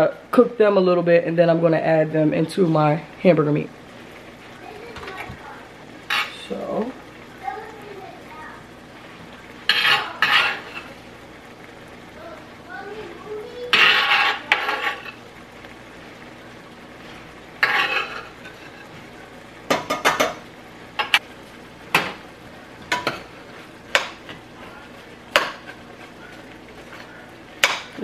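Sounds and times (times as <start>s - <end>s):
meat sizzling: 0.0s - 28.0s
utensil scraping pot: 6.0s - 7.0s, 9.5s - 11.1s, 13.5s - 15.2s, 17.0s - 19.0s, 22.8s - 28.0s.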